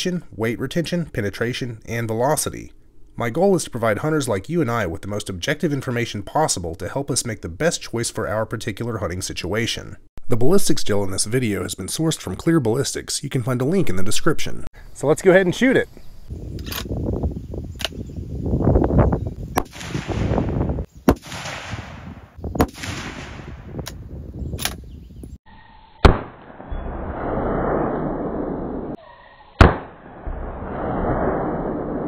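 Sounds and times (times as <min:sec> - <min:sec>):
rifle shots cracking: 0:19.6 - 0:23.6, 0:29.6 - 0:30.0.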